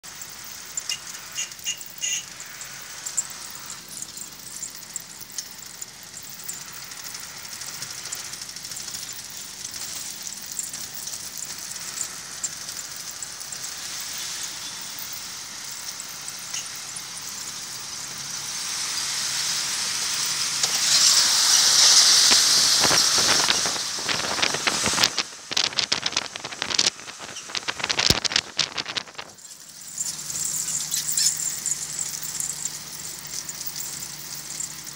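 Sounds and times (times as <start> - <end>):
light squeaks: 0.2 - 17.6, 20.2 - 34.9
wind and road noise rushing: 17.9 - 30.6.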